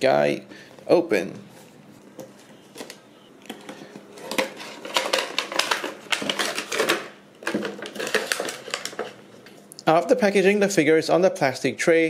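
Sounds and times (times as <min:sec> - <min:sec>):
plastic tray and cardboard crackling: 0:02.2 - 0:09.6.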